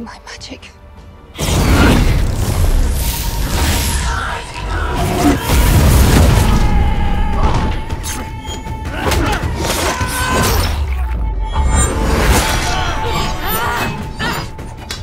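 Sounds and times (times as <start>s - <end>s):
action film music: 0.0s - 15.0s.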